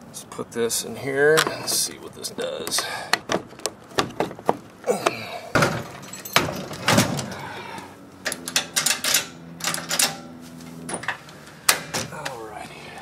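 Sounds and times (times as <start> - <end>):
steady low hum: 0.0 - 13.0
metal chains rattling: 5.8 - 7.3.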